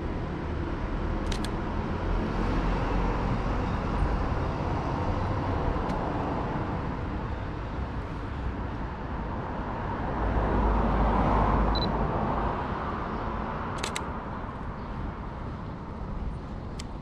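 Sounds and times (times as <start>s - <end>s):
traffic rumble: 0.0s - 17.0s
camera shutter double click: 1.2s - 1.6s, 13.8s - 14.1s.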